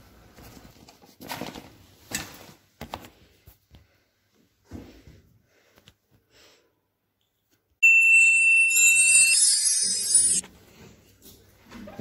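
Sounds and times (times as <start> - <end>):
bright tinkling jingle: 7.8 - 10.4.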